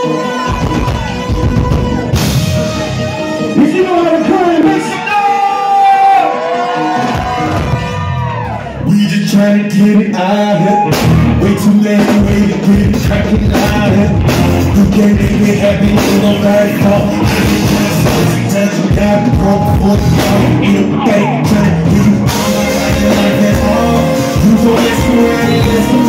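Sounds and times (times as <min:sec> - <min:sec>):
bass line: 0:00.0 - 0:05.6, 0:06.2 - 0:26.0
drums: 0:00.0 - 0:06.0, 0:06.6 - 0:26.0
live band music: 0:00.0 - 0:26.0
man singing through pa: 0:08.8 - 0:26.0
electric guitar: 0:09.9 - 0:26.0.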